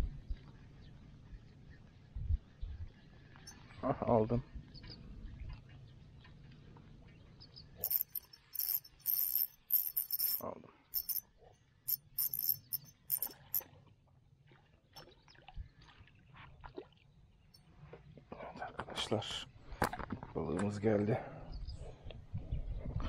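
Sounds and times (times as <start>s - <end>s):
fishing reel drag clicking: 7.8s - 10.4s, 11.0s - 11.2s, 11.9s - 13.6s.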